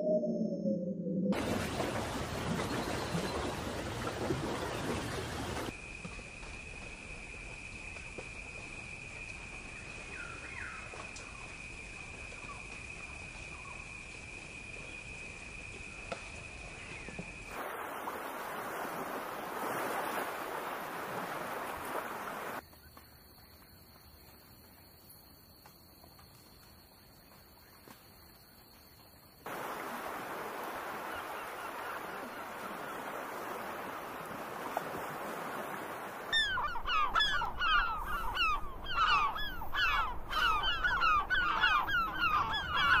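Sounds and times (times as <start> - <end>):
high-pitched whine: 0.0 - 1.4.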